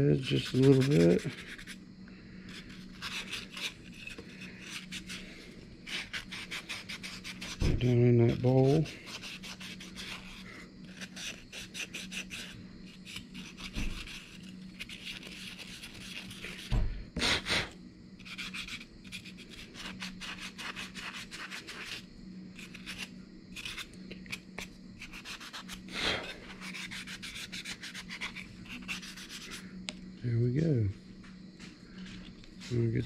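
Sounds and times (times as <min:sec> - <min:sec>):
sandpaper rubbing on wood: 0:00.2 - 0:01.8, 0:05.9 - 0:07.7, 0:08.3 - 0:16.7, 0:18.2 - 0:22.0, 0:25.0 - 0:29.6.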